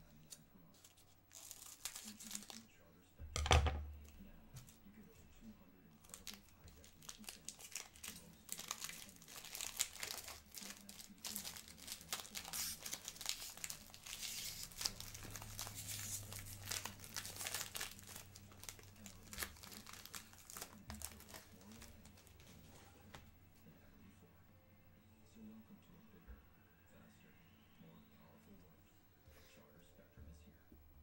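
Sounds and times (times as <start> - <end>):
foil wrapper crinkling and tearing: 0.8 - 2.7, 6.0 - 22.5.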